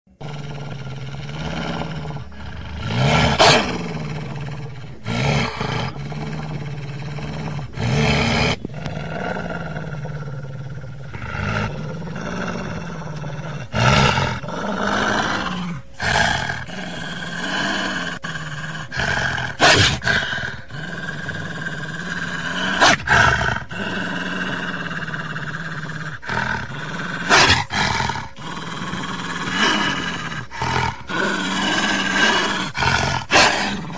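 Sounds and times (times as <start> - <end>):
dog growling: 0.1 - 33.9.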